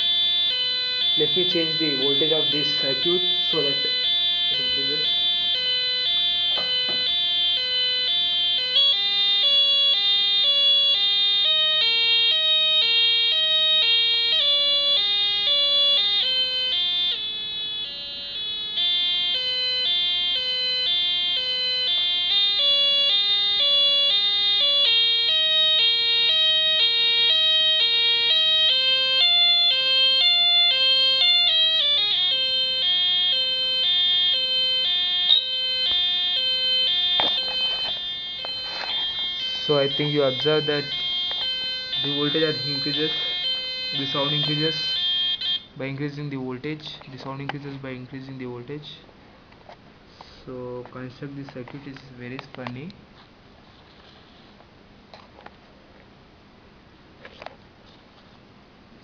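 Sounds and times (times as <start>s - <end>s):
buzzy two-tone electronic siren: 0.0s - 45.9s.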